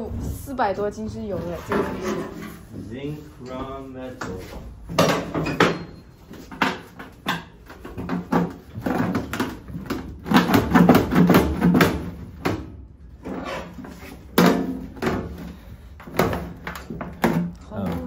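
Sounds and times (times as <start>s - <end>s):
sheet metal creaking and scraping: 0.0s - 10.4s.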